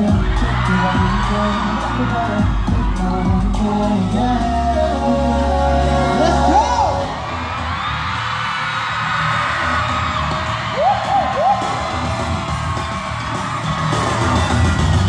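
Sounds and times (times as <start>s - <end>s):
crowd screaming: 0.0s - 4.7s, 5.9s - 15.0s
pulsing bass beat: 0.0s - 7.1s
dance track over loudspeakers: 0.0s - 15.0s
rising and falling whoops: 7.1s - 14.3s.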